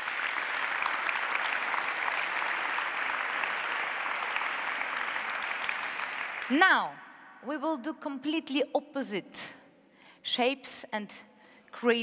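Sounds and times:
audience applauding: 0:00.0 - 0:06.7.

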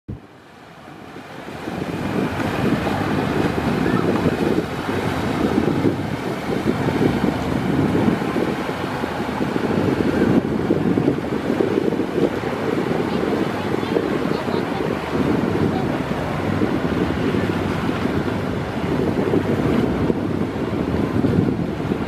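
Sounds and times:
water jets rushing and spraying: 0:00.1 - 0:22.0
wind buffeting microphone: 0:00.1 - 0:22.0
engine running hard: 0:01.0 - 0:22.0.

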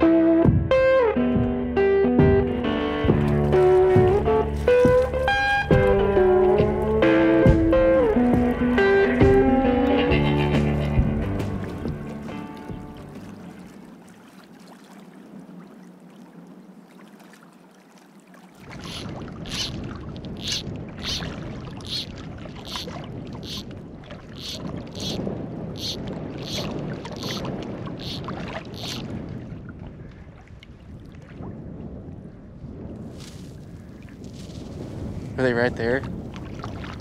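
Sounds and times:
background music: 0:00.0 - 0:13.6
wind: 0:00.0 - 0:37.0
water noise: 0:02.2 - 0:37.0.

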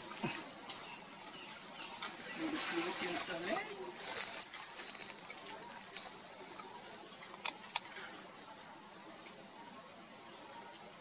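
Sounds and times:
monkey chewing food: 0:04.0 - 0:08.2.

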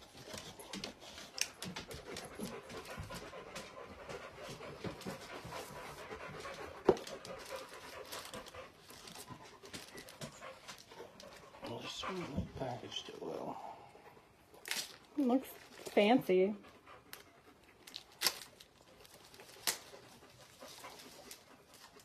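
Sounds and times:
plastic wrapping crinkling: 0:07.0 - 0:11.3, 0:14.6 - 0:16.1, 0:17.8 - 0:22.0.

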